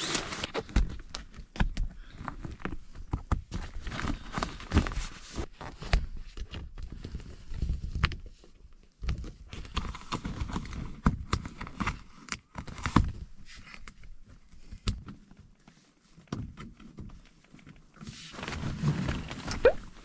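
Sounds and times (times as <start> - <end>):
tent fabric rustling: 18.0 - 20.0.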